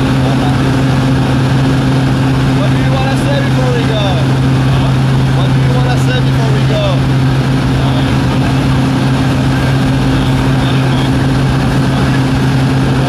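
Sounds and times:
propeller plane engine droning: 0.0 - 13.0.

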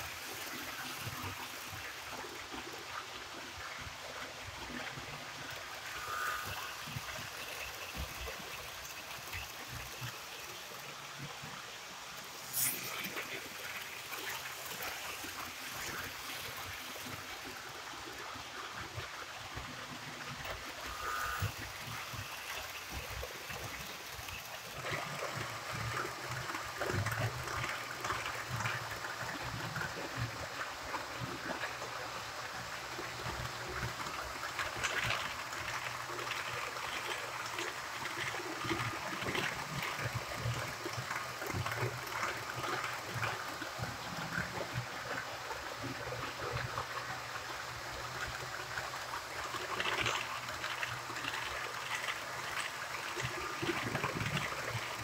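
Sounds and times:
faint steady whine: 0.0 - 55.0
model train coaches rolling: 0.0 - 55.0.

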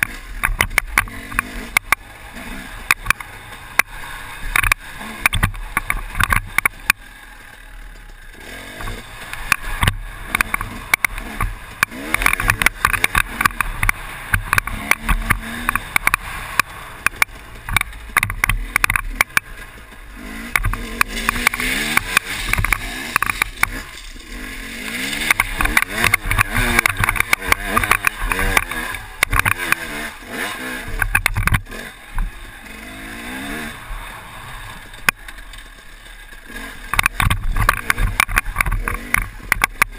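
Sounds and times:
motorcycle engine revving: 0.0 - 39.9
knocks and rattles: 30.8 - 32.4, 34.8 - 39.9.

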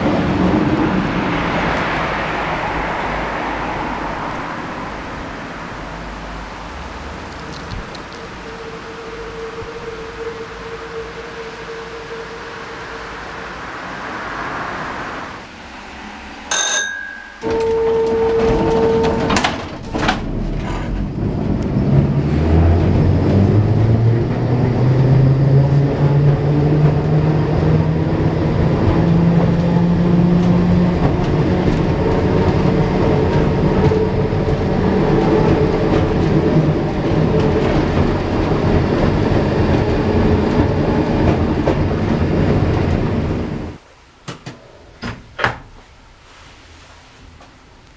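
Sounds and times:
tram motors whining: 0.0 - 43.8
steady beep: 16.5 - 17.9
clunks: 16.5 - 21.8
wheels running on rails: 16.5 - 43.8.

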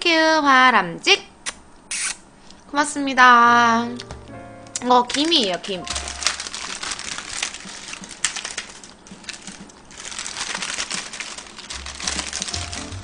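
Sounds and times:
wrapped packets crinkling: 4.8 - 13.0.

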